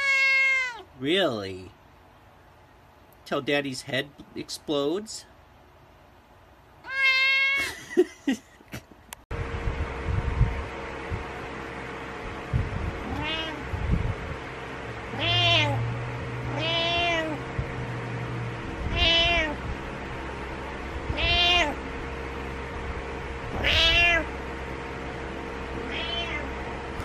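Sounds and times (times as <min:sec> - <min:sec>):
cat meowing: 0:00.0 - 0:00.9, 0:06.8 - 0:07.6, 0:13.0 - 0:13.7, 0:15.1 - 0:15.8, 0:16.5 - 0:17.4, 0:18.8 - 0:19.6, 0:21.1 - 0:21.8, 0:23.5 - 0:24.3, 0:25.8 - 0:26.5.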